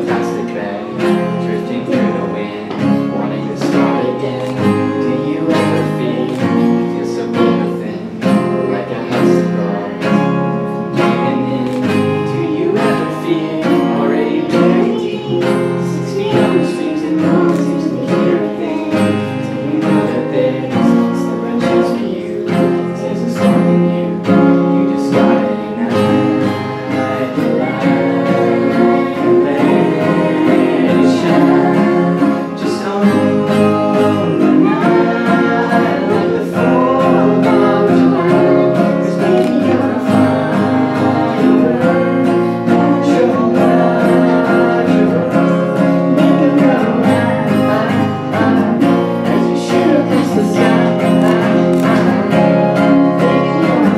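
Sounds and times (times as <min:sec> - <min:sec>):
acoustic guitars strumming: 0:00.0 - 0:53.9
girl singing: 0:11.0 - 0:48.7.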